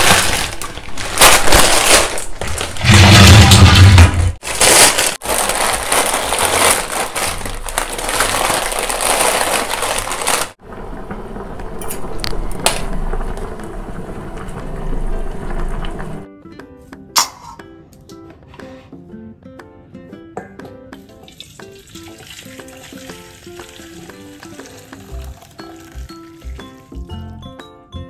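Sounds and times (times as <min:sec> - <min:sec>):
plastic packet crinkling: 0:00.0 - 0:03.0, 0:04.4 - 0:10.6.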